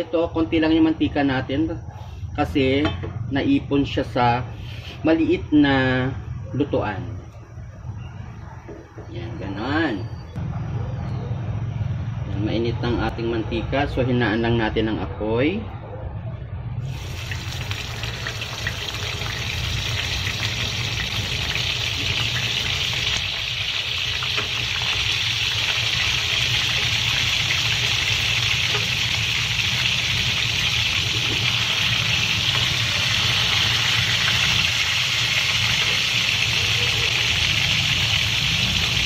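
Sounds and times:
fish sizzling in hot oil: 16.8 - 39.0.

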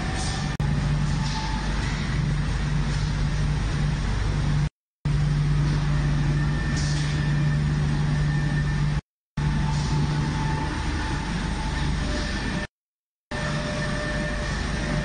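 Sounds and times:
filter press machinery hum: 0.0 - 12.7, 13.3 - 15.0.

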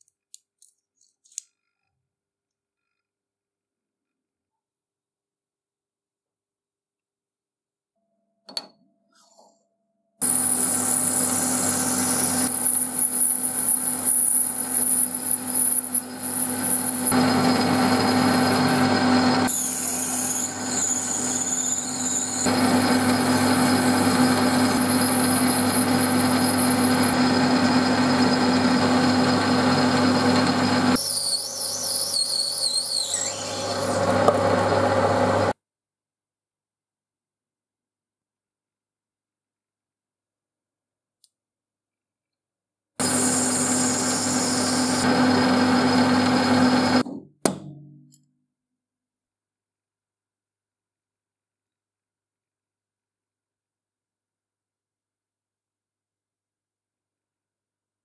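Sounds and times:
metal lathe motor hum: 10.2 - 13.9, 14.7 - 31.0, 33.3 - 35.5, 43.0 - 47.0
high whine of machining: 10.2 - 35.5, 43.0 - 47.0.

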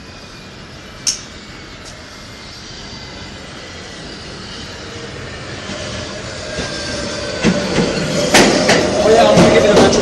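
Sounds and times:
subway train pulling in: 0.0 - 10.0
wheels clacking over rail joints: 6.5 - 10.0.

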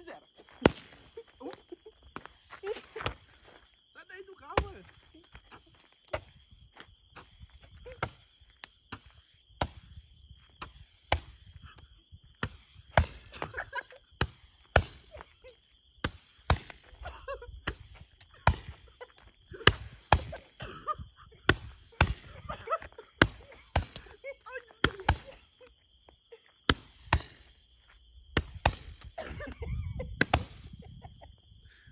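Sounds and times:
firecracker pops: 0.6 - 1.2, 16.0 - 16.8, 17.7 - 18.9, 26.7 - 27.5, 28.4 - 29.2, 30.1 - 30.8.

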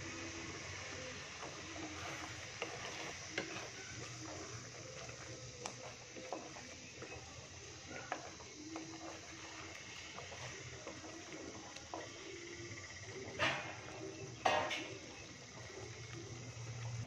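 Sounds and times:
spatula stirring gravy in pot: 0.0 - 17.0
steady low hiss: 0.0 - 17.0
knocks and scrapes against pot: 13.2 - 15.0.

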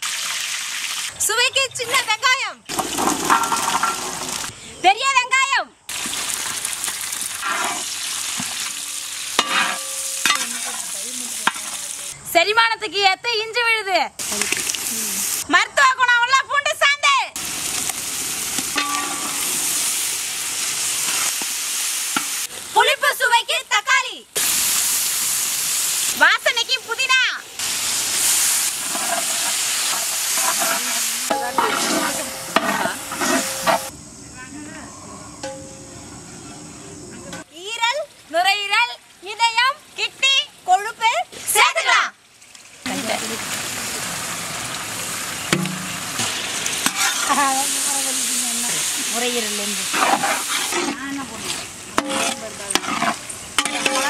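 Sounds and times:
onions sizzling in hot oil: 5.9 - 12.2, 14.2 - 15.5, 17.4 - 33.9, 37.5 - 54.0
metal ladle scraping a pan: 7.4 - 11.8, 18.6 - 20.1, 28.6 - 33.9, 45.6 - 47.9, 49.8 - 54.0.

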